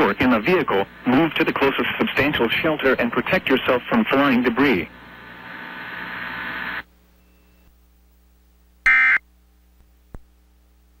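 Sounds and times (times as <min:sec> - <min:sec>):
broadcast audio hiss: 0:00.0 - 0:11.0
buzzy emergency alert data tones: 0:08.9 - 0:09.2.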